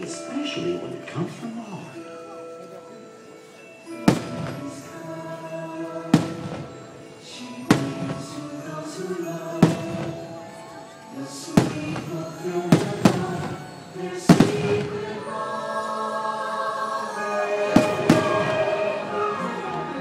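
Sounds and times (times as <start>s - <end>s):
music: 0.0s - 20.0s
fireworks bursting with sharp bangs: 3.9s - 4.9s, 6.1s - 15.2s, 17.7s - 19.1s.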